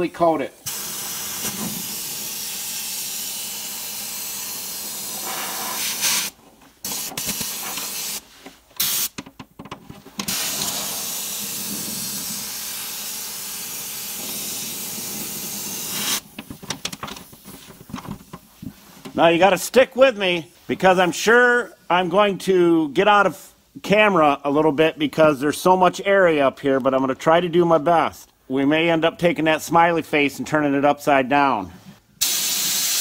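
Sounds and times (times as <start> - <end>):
compressed-air sprayer hissing: 0.6 - 9.2, 10.3 - 16.4, 32.2 - 33.0.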